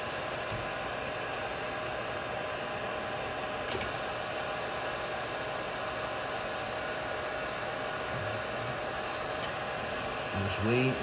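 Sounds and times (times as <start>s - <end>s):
heat gun blowing hot air: 0.0s - 11.0s.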